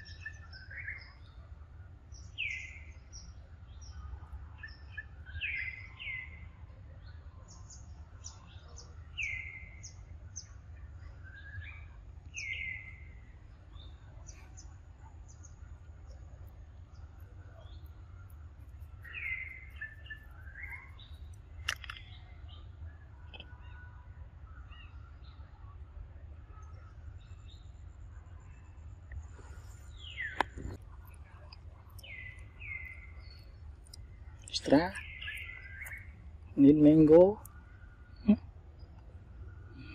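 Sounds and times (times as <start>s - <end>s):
high bird chirps: 19.0s - 22.6s, 29.5s - 38.3s
sharp click: 21.6s - 22.1s.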